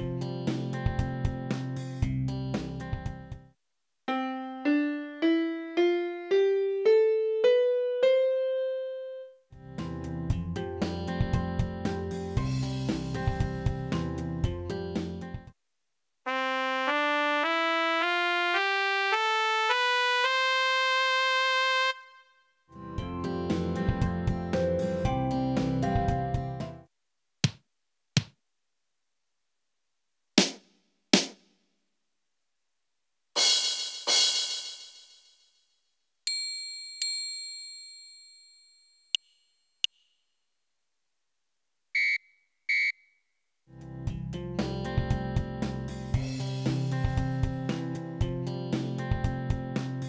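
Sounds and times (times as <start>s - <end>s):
keyboard trumpet tone notes: 16.3s - 22.5s.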